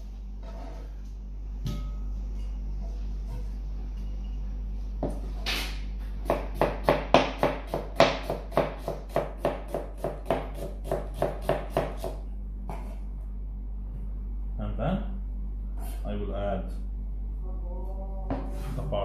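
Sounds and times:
knife slicing onion on board: 0:05.0 - 0:13.0.

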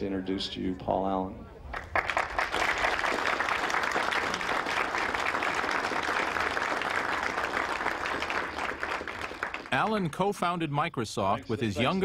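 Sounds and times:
audience applauding: 0:01.7 - 0:10.1.

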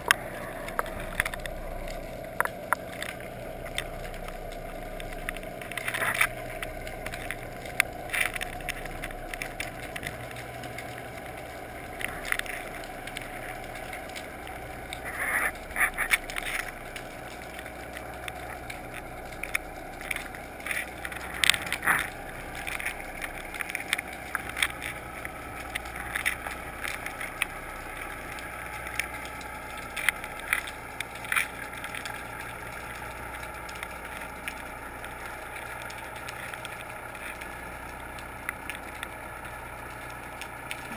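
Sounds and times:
clicks and crackles: 0:00.0 - 0:40.9
muffled underwater rush: 0:00.0 - 0:40.9.

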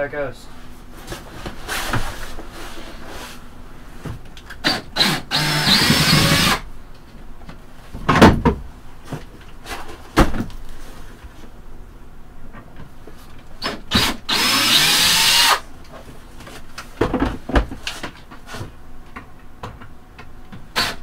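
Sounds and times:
cordless drill whining: 0:04.6 - 0:06.6, 0:13.6 - 0:15.6
knocks and clatter of wood: 0:08.0 - 0:10.6, 0:16.0 - 0:19.9.

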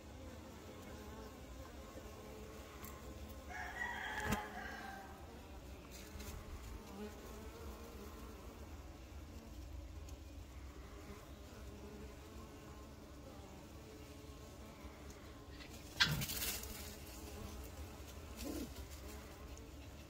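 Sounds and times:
bees buzzing: 0:00.0 - 0:20.0.

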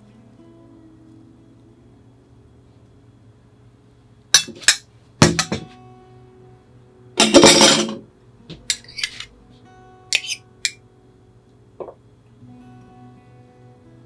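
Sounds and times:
tableware clinking: 0:07.2 - 0:08.0, 0:08.7 - 0:09.3, 0:10.1 - 0:10.8.

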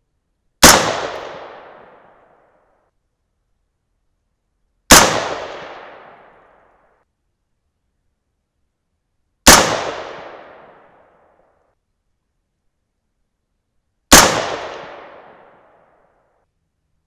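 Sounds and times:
rifle shots with echo: 0:00.6 - 0:02.4, 0:04.9 - 0:06.7, 0:09.4 - 0:11.2, 0:14.1 - 0:15.9.

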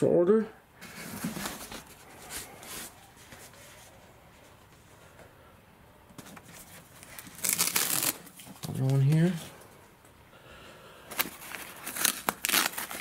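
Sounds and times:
foil cover rustling: 0:00.8 - 0:03.9, 0:06.2 - 0:09.4, 0:11.1 - 0:13.0.

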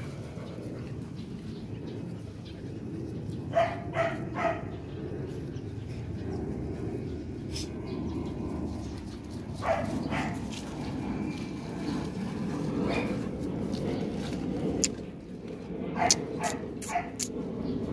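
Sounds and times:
puppy barking: 0:03.5 - 0:04.7, 0:09.6 - 0:10.4, 0:16.0 - 0:17.3.

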